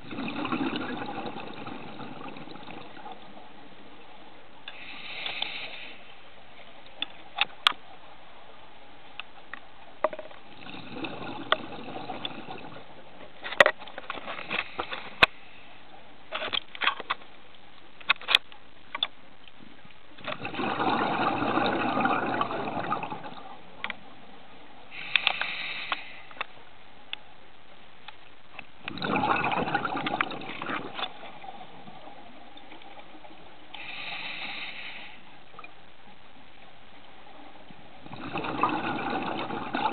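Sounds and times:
exhaled bubbles rushing: 0.0 - 3.3, 10.5 - 12.8, 20.3 - 23.5, 28.8 - 31.3, 38.0 - 39.9
regulator inhale hiss: 4.7 - 6.2, 14.4 - 15.9, 24.9 - 26.5, 33.7 - 35.4.

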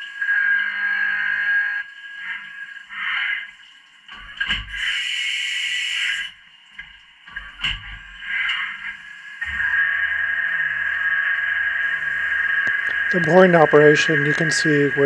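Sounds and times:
mill spindle whining: 0.0 - 15.0
air hiss: 4.8 - 6.3.

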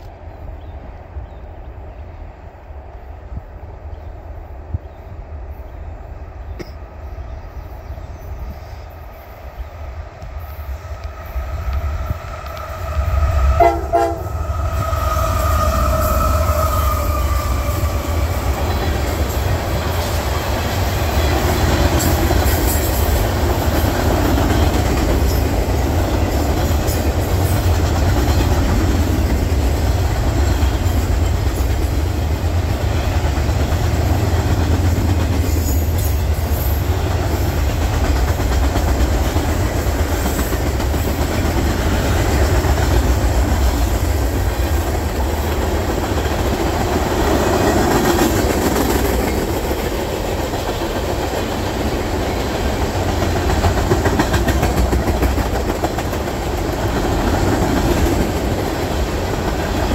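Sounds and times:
train cars rumbling on rails: 0.0 - 59.9
train horn: 12.1 - 18.9.

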